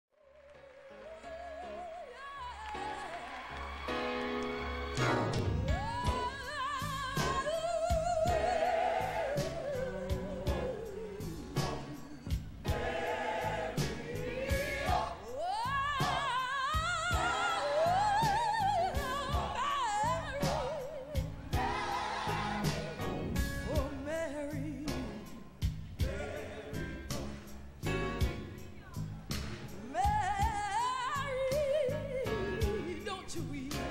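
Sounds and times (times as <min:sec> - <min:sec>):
musical accompaniment with beat: 0:01.2 - 0:33.9
woman singing gospel: 0:05.6 - 0:12.3, 0:14.6 - 0:21.3, 0:23.7 - 0:25.3, 0:29.8 - 0:33.9.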